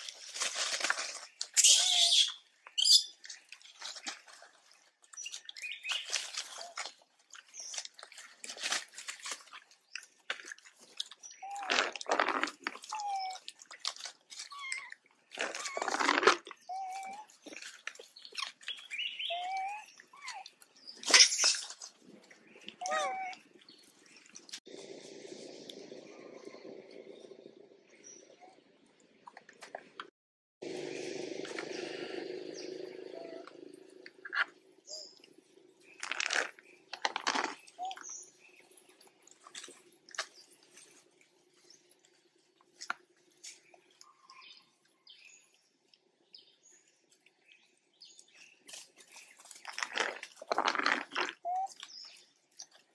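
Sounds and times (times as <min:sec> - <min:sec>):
dry leaves crunching: 0:00.0 - 0:02.1
monkeys rustling through dry leaves: 0:00.0 - 0:22.1
whistled monkey coo calls: 0:01.6 - 0:03.0, 0:19.2 - 0:20.4.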